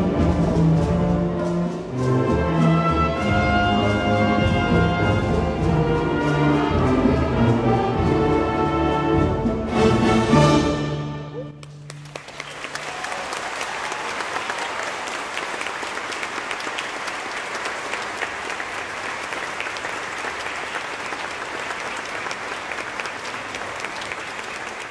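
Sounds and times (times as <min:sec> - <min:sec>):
audience applauding: 0:11.6 - 0:24.9.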